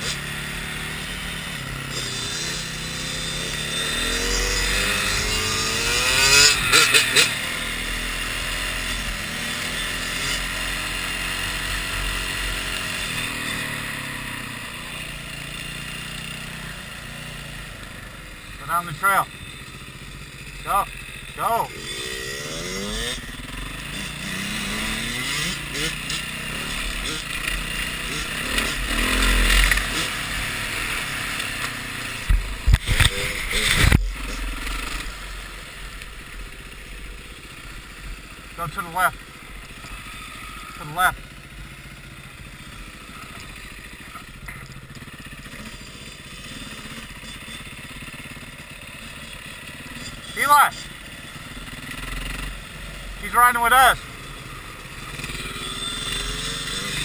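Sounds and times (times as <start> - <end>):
dirt bike engine running: 0.0 - 57.0.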